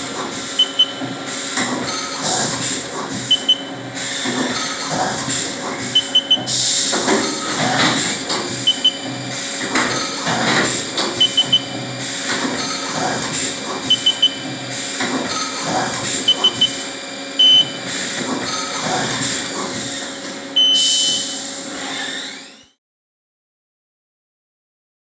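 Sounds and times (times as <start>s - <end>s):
milling machine cutting: 0.0s - 22.8s
triple beep: 0.6s - 1.0s, 3.3s - 3.7s, 5.9s - 6.6s, 8.6s - 9.1s, 11.2s - 11.7s, 13.9s - 14.4s, 16.3s - 16.8s, 17.4s - 17.8s, 20.6s - 21.3s.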